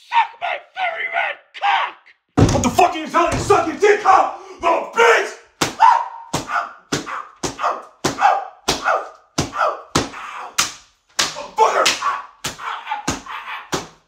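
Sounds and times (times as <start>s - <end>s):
slaps or punches: 5.6s - 14.0s.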